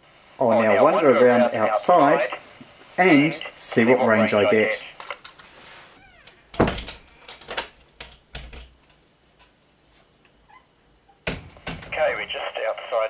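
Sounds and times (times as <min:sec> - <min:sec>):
knocks and thumps: 0:11.2 - 0:12.0.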